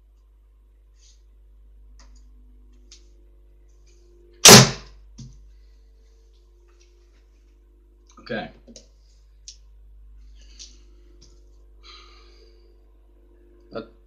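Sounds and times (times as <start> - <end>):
arrow hitting cardboard target: 4.4 - 5.3.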